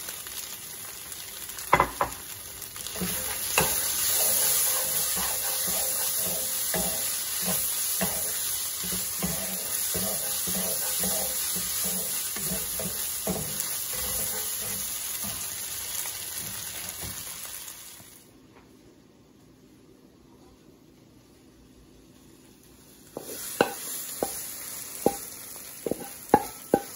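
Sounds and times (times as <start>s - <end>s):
food sizzling in a wok: 0.0s - 18.3s, 22.1s - 26.9s
wooden spatula scraping a wok: 2.9s - 15.6s.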